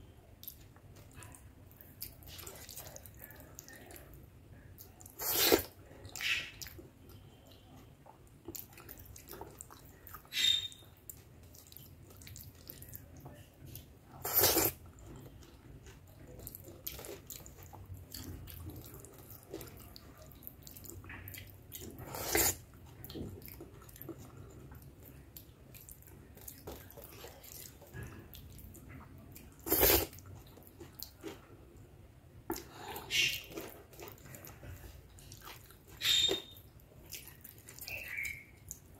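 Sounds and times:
chewing and lip smacking: 0:00.4 - 0:31.6, 0:32.5 - 0:38.9.

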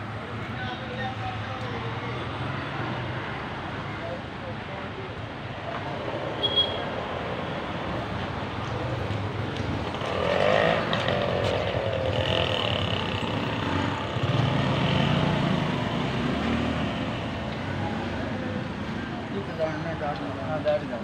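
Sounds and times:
motor vehicles passing: 0:05.6 - 0:21.0.

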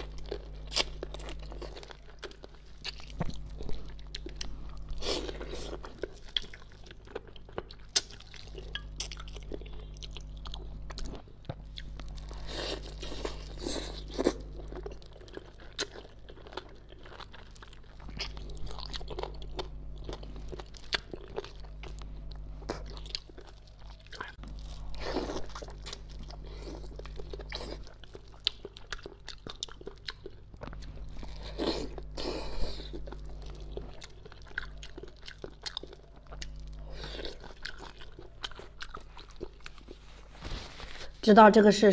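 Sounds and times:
wet chewing and sucking: 0:00.0 - 0:41.2.

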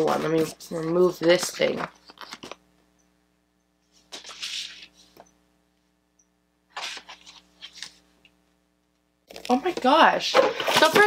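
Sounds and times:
faint steady hum: 0:00.0 - 0:11.0
cardboard rustling and scraping: 0:04.0 - 0:05.2, 0:06.7 - 0:08.0.

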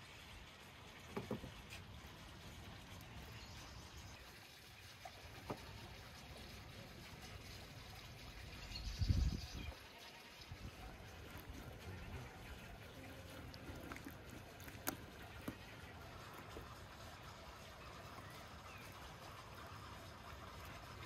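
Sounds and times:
wet squishing of meat: 0:13.3 - 0:15.8.

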